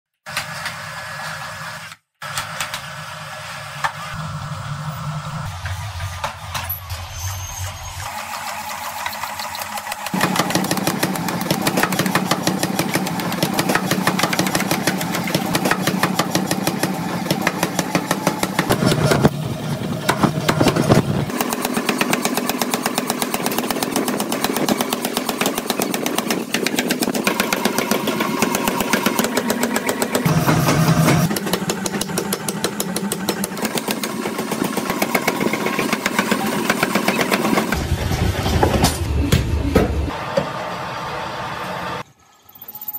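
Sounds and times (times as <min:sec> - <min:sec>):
machine motor running: 0:00.3 - 0:39.2
power hammer pounding steel: 0:09.8 - 0:40.5.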